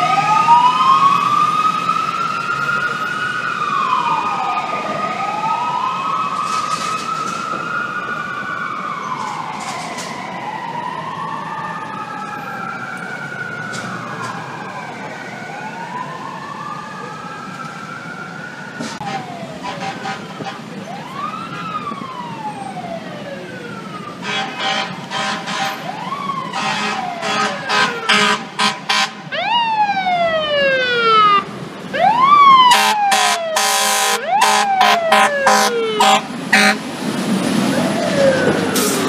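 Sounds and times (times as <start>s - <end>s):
wailing mechanical siren: 0.0s - 37.0s, 37.6s - 39.0s
air horn blasts: 19.0s - 20.6s, 24.2s - 25.8s, 26.5s - 29.2s, 32.7s - 36.8s.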